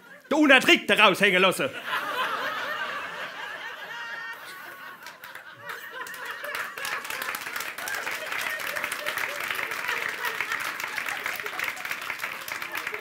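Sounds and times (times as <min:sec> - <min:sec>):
audience laughing: 0:01.6 - 0:13.0
scattered clapping: 0:05.0 - 0:13.0.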